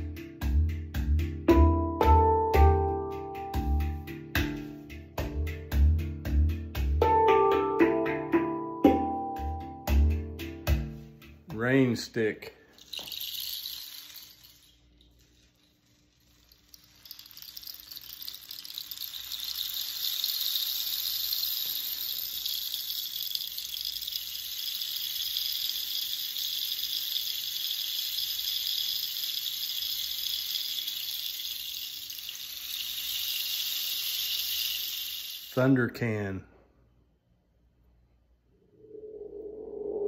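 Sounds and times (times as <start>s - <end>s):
rain stick trickling: 12.7s - 35.8s.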